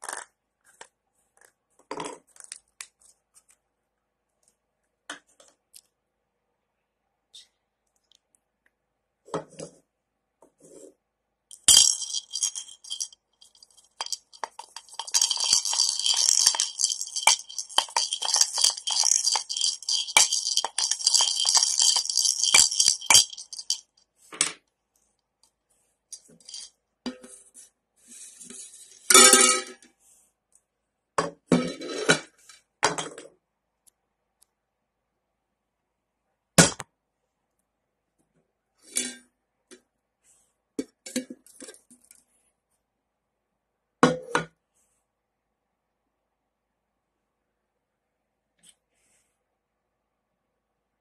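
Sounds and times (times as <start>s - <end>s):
balls rattling in plastic bowl: 0.0s - 0.8s, 11.5s - 24.0s, 26.2s - 26.8s.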